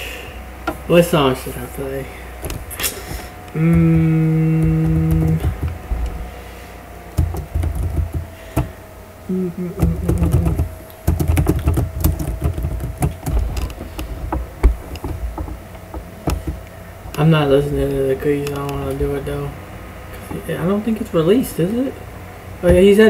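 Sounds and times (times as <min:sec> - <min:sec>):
man humming: 0:03.0 - 0:06.3, 0:09.3 - 0:10.7
computer keyboard typing and clicking: 0:04.5 - 0:06.1, 0:07.2 - 0:08.7, 0:09.8 - 0:13.8.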